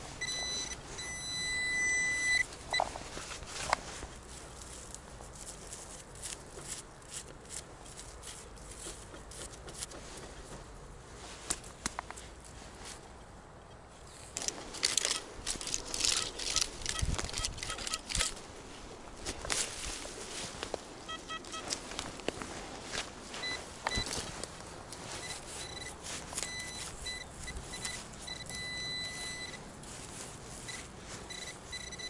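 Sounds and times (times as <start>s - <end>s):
dry leaves and soil rustling: 0.0s - 32.0s
metal detector beeps: 0.1s - 3.0s, 14.9s - 18.3s, 21.1s - 21.8s, 23.4s - 24.2s, 25.1s - 29.6s, 30.6s - 32.0s.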